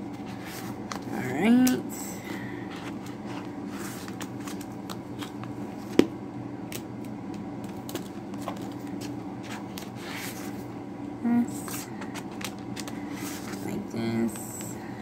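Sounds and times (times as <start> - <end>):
plastic pages rustling: 2.2 - 6.0, 7.6 - 10.7, 11.7 - 13.8.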